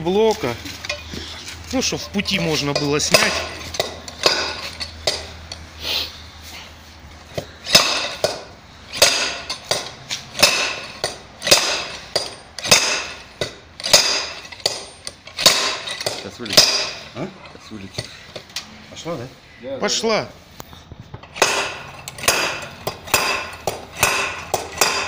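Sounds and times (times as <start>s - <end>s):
slide hammer clanking: 1.8s - 5.6s, 7.4s - 18.6s, 21.2s - 25.0s.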